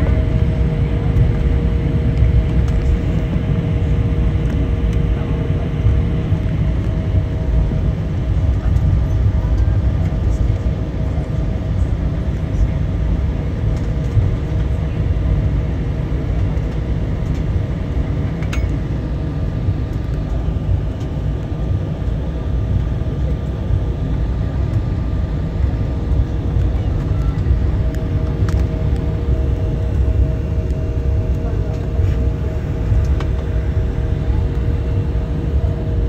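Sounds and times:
airliner cabin rumble: 0:00.0 - 0:36.0.

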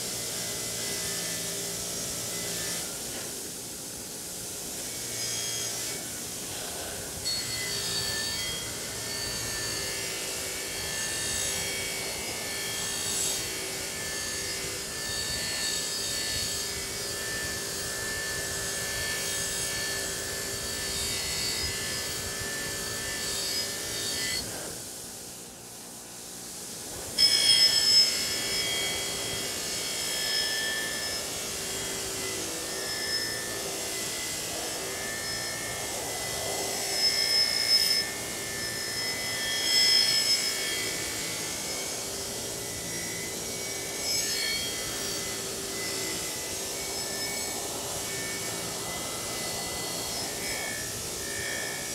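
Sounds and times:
wire wheel grinder humming: 0:00.0 - 0:25.6, 0:26.7 - 0:51.9.

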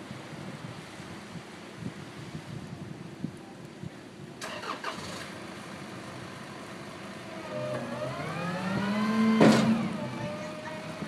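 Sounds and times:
garbage truck engine revving: 0:07.3 - 0:11.0.

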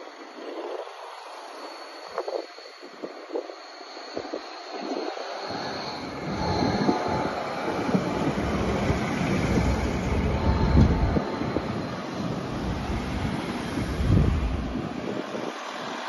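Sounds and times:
faint high whine: 0:00.0 - 0:16.0
tram wheels rumbling on rail: 0:04.0 - 0:16.0.

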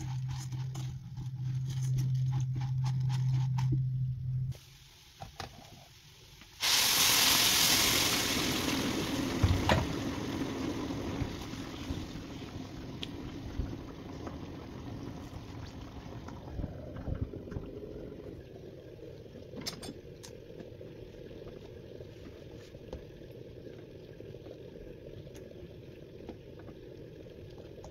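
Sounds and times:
low hum: 0:00.0 - 0:04.6, 0:09.1 - 0:27.9
food sizzling in hot oil: 0:04.5 - 0:12.8.

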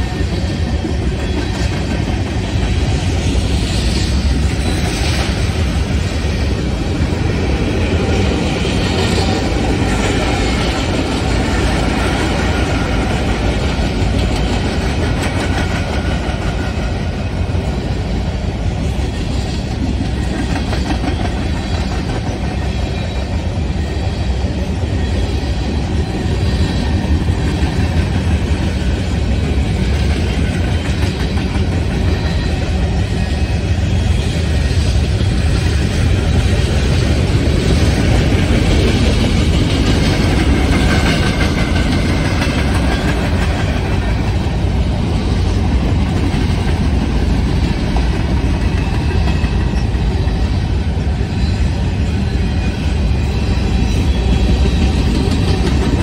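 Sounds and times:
train wheels on rails: 0:00.0 - 0:56.0.

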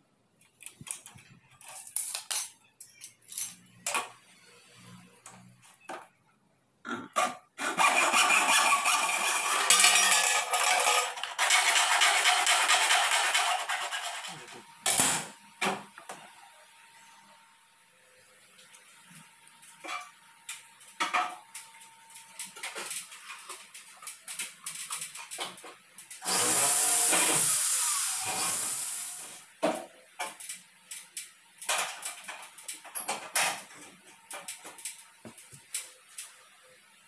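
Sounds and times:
electric drill running: 0:26.2 - 0:29.3.

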